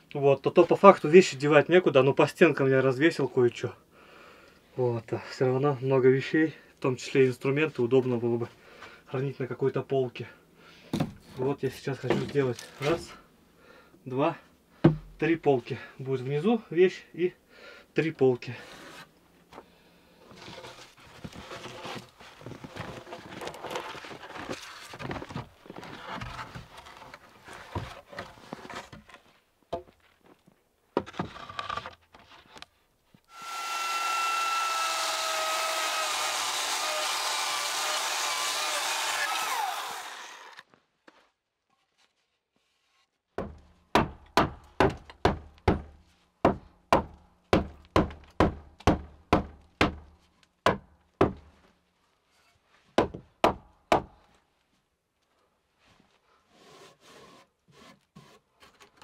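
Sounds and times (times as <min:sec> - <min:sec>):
wooden boards knocked and rubbed: 0:20.3 - 0:30.0
power tool whining: 0:33.3 - 0:40.7.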